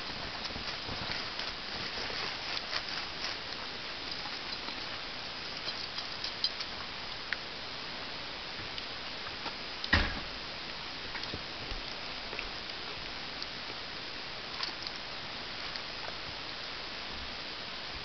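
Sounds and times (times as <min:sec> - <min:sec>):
paws digging in snow: 0:00.0 - 0:05.0
loud thump: 0:09.9 - 0:10.3.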